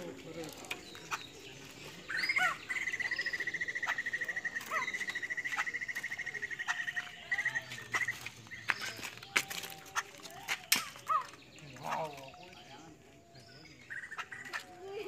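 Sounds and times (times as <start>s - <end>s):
fast rattling bird trill: 0.0s - 13.0s, 13.7s - 15.0s
bird calling: 0.0s - 15.0s.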